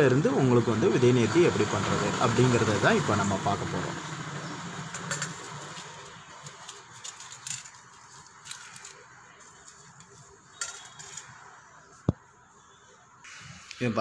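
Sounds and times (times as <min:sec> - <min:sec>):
steel bowls and cups clinking: 0:04.8 - 0:11.6.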